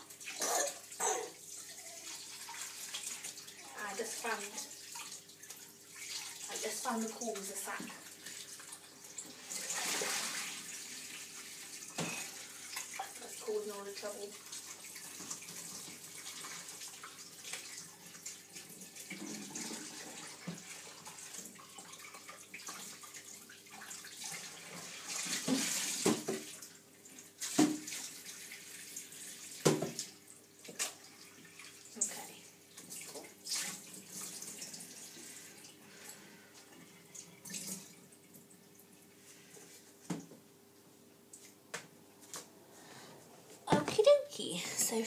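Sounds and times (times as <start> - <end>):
tap water splashing into sink: 2.3 - 34.9, 40.0 - 40.4.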